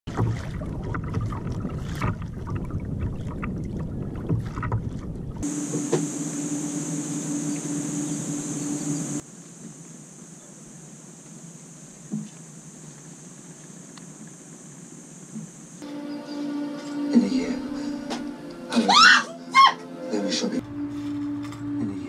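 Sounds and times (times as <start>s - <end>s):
water knocking and splashing: 0.0s - 6.5s
wind buffeting microphone: 0.3s - 5.4s
steady hum: 5.4s - 16.1s.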